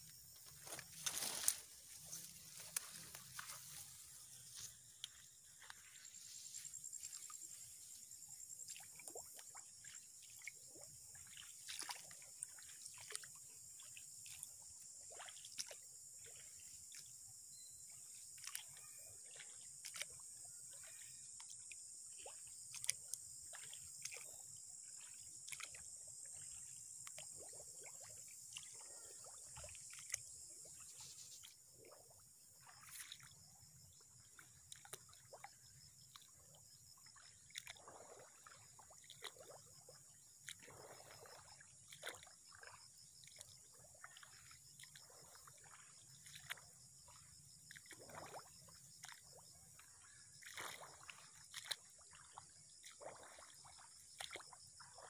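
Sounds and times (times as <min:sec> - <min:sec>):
footsteps splashing in shallow water: 0:00.0 - 0:55.0.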